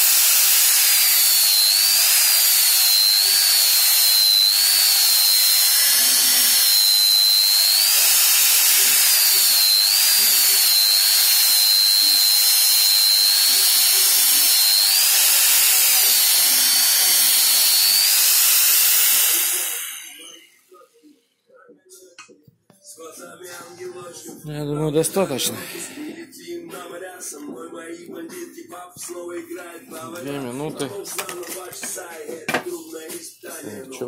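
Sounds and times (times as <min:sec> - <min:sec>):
belt grinder grinding metal: 0:00.0 - 0:20.5.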